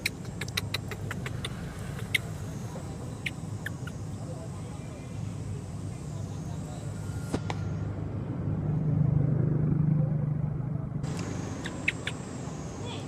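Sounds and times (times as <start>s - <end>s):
sharp clicks: 0.0s - 2.3s
passing vehicle engine hum: 0.0s - 13.0s.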